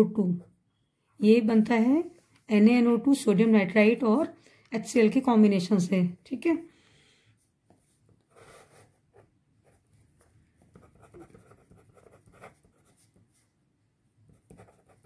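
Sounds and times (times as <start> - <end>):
pen scratching on paper: 8.3 - 13.5, 14.3 - 15.0.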